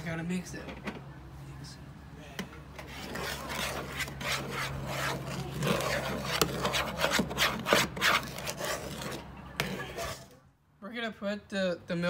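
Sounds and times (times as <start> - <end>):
spoon scraping cornmeal in bowl: 2.8 - 10.4.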